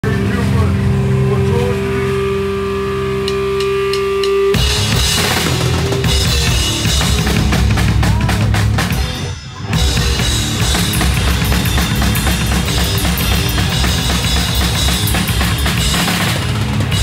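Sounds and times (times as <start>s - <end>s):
amplified note ringing with hum: 0.0s - 7.5s
death metal band playing live: 0.0s - 17.0s
distorted guitars: 0.0s - 17.0s
rapid drum hits: 4.6s - 17.0s.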